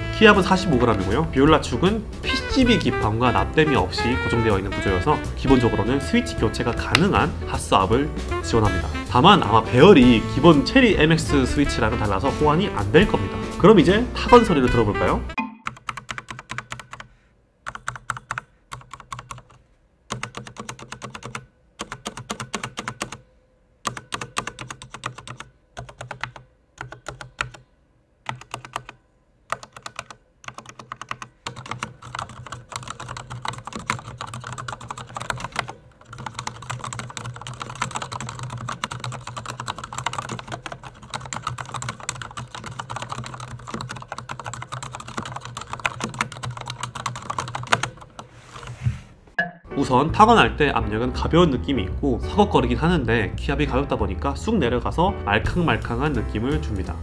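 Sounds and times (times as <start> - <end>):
mechanical keyboard typing: 15.6 - 17.1, 17.7 - 23.2, 23.9 - 27.7, 28.3 - 48.7.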